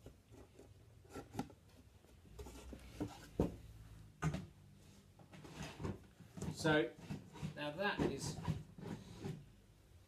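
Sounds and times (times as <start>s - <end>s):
wooden drawer sliding and scraping: 5.4s - 9.6s.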